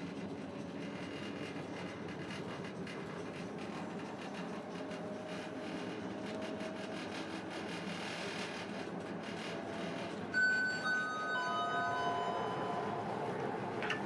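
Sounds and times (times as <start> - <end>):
train wheels rumbling on rails: 0.0 - 11.1, 11.8 - 14.0
bright ringing tone: 10.4 - 14.0.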